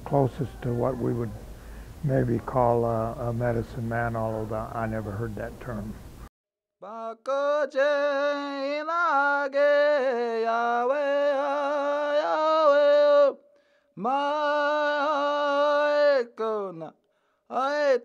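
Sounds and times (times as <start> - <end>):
man chanting unaccompanied: 0.0 - 6.0.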